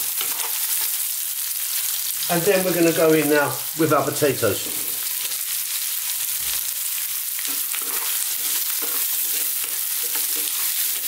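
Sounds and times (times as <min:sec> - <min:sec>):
potatoes sizzling in oil: 0:00.0 - 0:11.0
wooden spatula scraping pan: 0:07.5 - 0:11.0.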